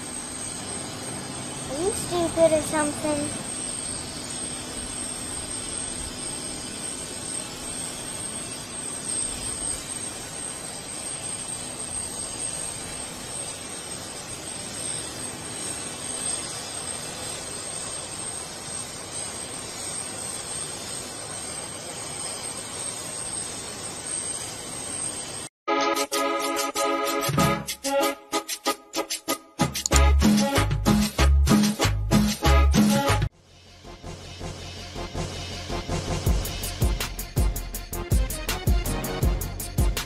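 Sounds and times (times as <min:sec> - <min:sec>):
helicopter turbine engines running: 0:00.0 - 0:25.5, 0:33.3 - 0:40.0.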